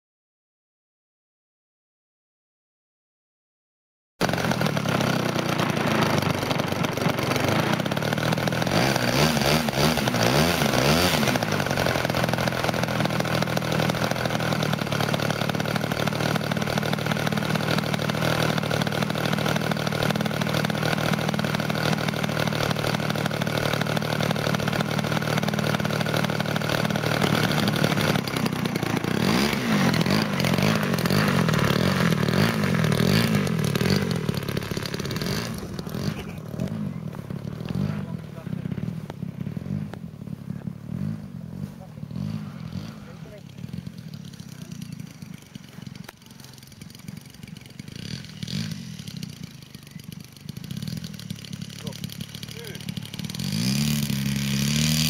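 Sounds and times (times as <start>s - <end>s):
model aeroplane engine running: 4.2s - 55.0s.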